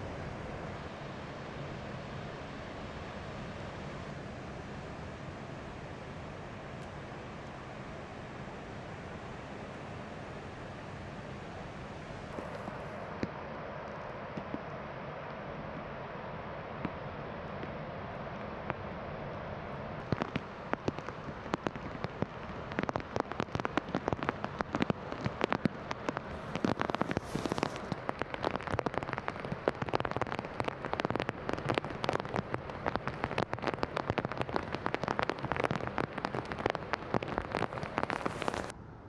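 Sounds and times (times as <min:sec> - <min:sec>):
raindrops clicking near microphone: 0:20.0 - 0:38.7.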